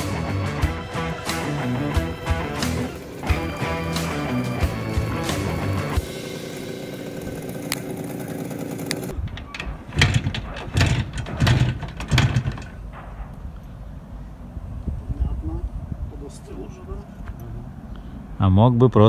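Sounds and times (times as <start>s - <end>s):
background music: 0.0s - 7.9s
motorcycle kick-start kicks: 2.3s - 13.0s.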